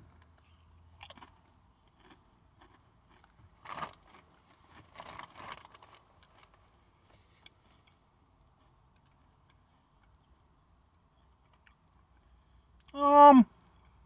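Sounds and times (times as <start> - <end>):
faint chewing crunches: 0.2 - 10.4
potato chip crunching bite: 1.0 - 4.2.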